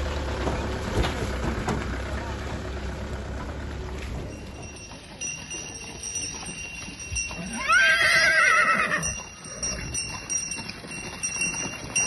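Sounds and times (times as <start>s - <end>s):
horse whinnying: 7.4s - 9.7s.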